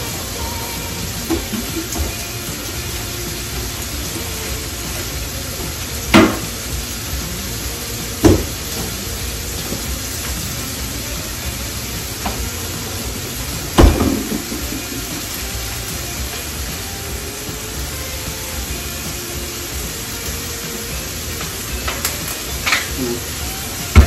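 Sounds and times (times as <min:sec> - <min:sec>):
food sizzling on a griddle: 0:00.0 - 0:24.0.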